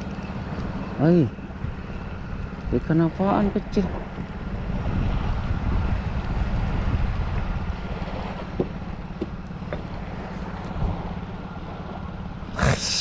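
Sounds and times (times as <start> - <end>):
wind buffeting microphone: 0.0 - 12.5.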